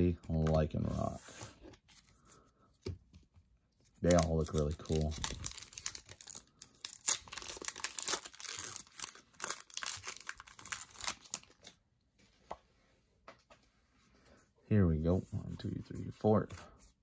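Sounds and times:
foil wrapper tearing and crinkling: 0:04.0 - 0:11.7.

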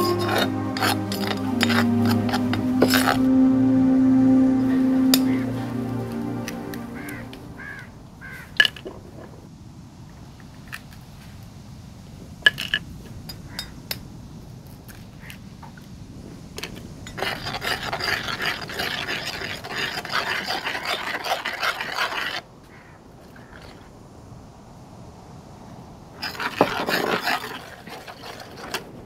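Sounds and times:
busy scraping crackle: 0:26.2 - 0:28.9.

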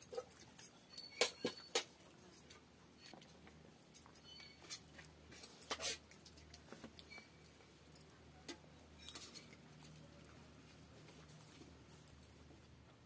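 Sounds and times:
chewing noises: 0:04.4 - 0:08.2.

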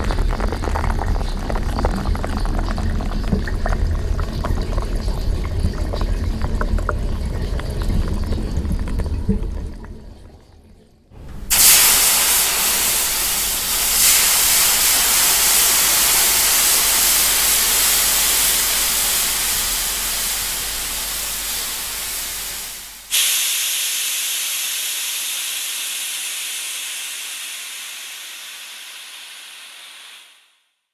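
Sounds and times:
steam hissing from a pipe: 0:11.2 - 0:30.5.

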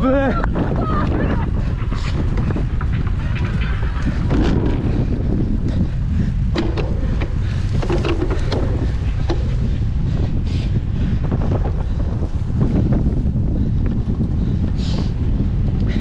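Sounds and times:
wind buffeting microphone: 0:00.0 - 0:16.0
clicks and rattles: 0:06.5 - 0:09.7.

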